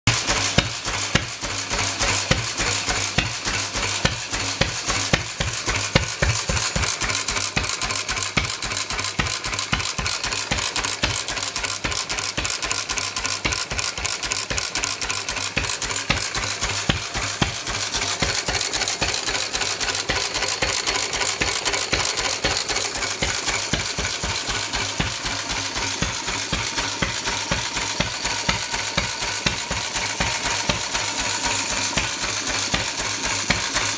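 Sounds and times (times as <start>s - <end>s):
stationary engine running: 0.0s - 33.9s
rapid metallic clicking: 0.1s - 33.9s.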